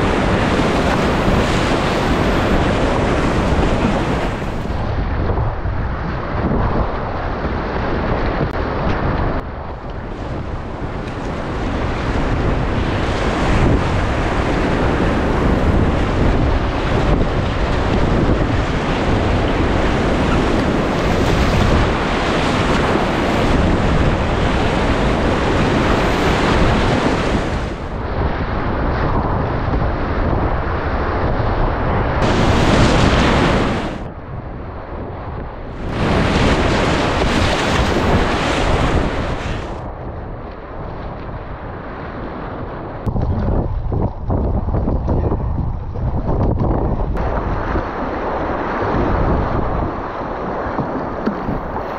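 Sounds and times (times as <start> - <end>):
whitewater rapids rushing: 32.2 - 34.1.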